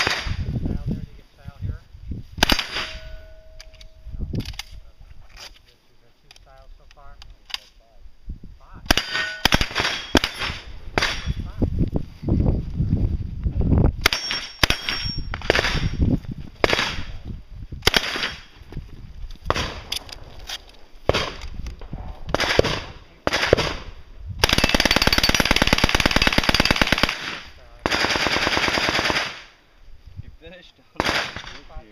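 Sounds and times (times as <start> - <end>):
submachine gun fire: 2.4 - 3.0, 8.9 - 11.3, 14.0 - 16.0, 17.8 - 18.5, 19.5 - 19.9, 22.3 - 29.5, 31.0 - 31.7.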